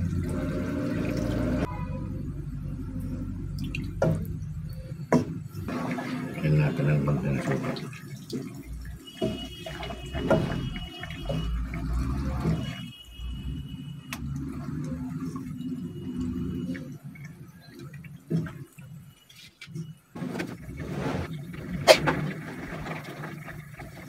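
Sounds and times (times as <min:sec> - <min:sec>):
liquid sloshing in a pot: 0:05.2 - 0:13.0, 0:20.4 - 0:24.0.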